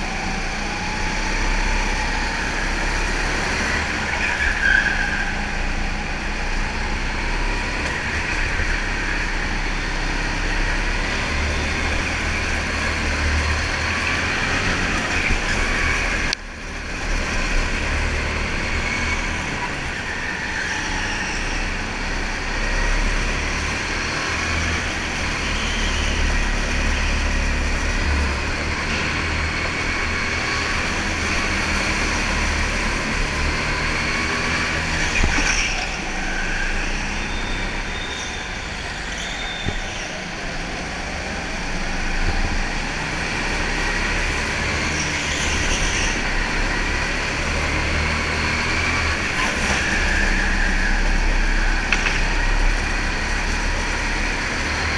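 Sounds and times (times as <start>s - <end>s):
go-kart running: 0.0s - 54.9s.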